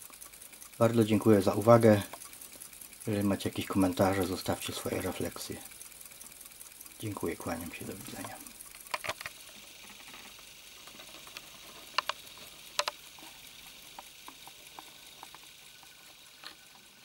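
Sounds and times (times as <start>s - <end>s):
alarm clocks ticking: 0.0s - 17.0s
sharp clicks: 11.2s - 16.8s.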